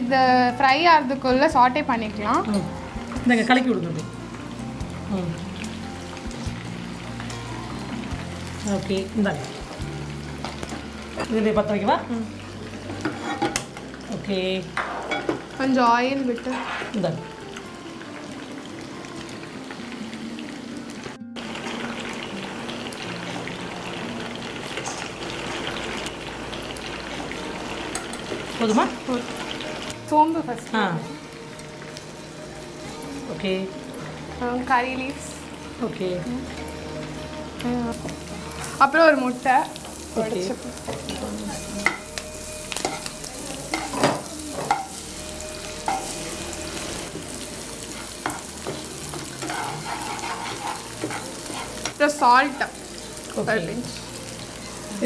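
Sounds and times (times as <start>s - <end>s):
egg sizzling in oil: 2.0s - 55.0s
metal spoon scraping pan: 16.4s - 17.0s, 48.0s - 52.0s
oil hissing in frying pan: 37.9s - 55.0s
spoon tapping pan: 41.8s - 43.1s, 43.7s - 45.0s, 45.8s - 46.2s.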